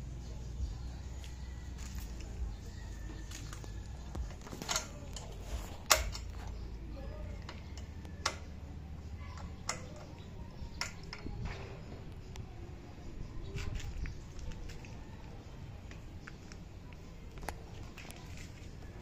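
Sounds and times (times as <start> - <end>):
hand tools clicking on metal and plastic: 3.4 - 6.6, 7.4 - 8.5.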